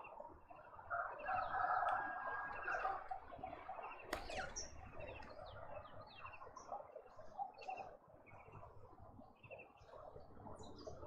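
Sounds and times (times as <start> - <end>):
distant birdsong: 2.5 - 5.7.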